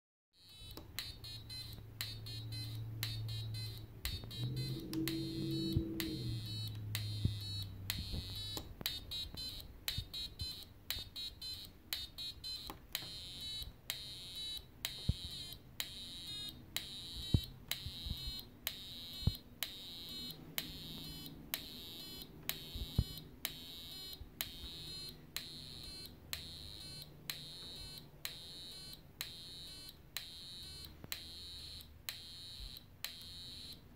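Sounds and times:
sharp sequencer clicks: 0.4s - 33.9s
buzzy square-wave tone: 0.5s - 33.8s.

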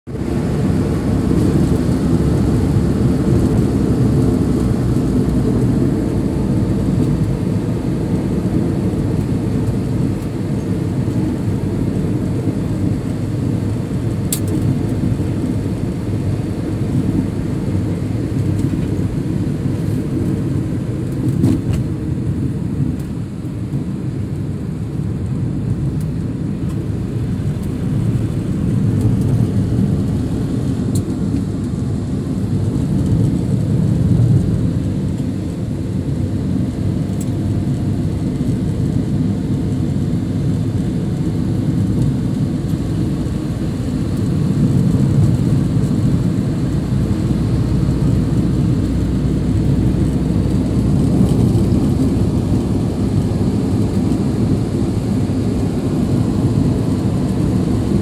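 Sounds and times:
car cabin road noise: 0.1s - 58.0s.

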